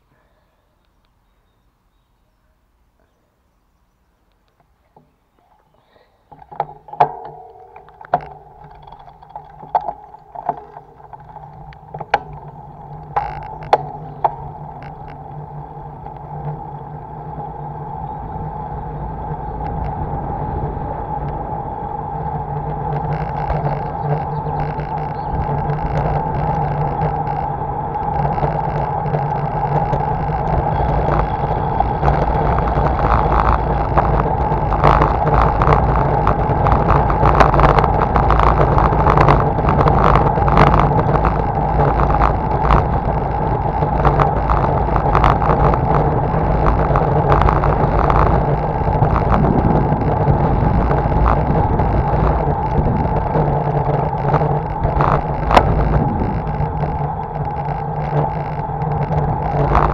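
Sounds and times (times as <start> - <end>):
bicycle rolling on asphalt: 3.8 - 59.9
rattling knocks: 6.2 - 15.3.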